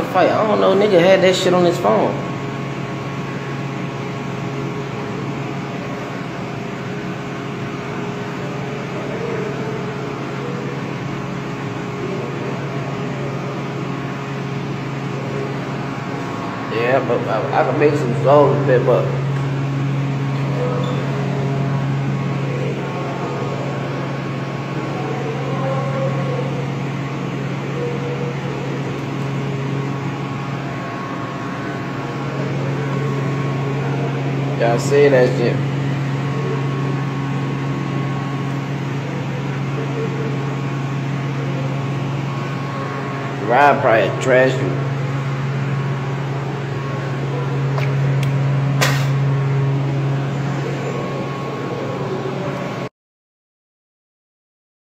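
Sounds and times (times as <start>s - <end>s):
faint wavering sounds: 0.0s - 52.9s
low mechanical hum: 0.0s - 52.9s
sharp knock: 48.8s - 49.2s.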